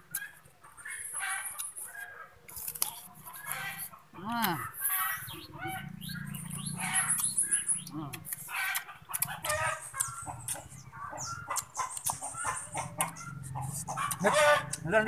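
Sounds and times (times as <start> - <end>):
chickens clucking: 0.0 - 15.0
high chirp: 4.9 - 8.4.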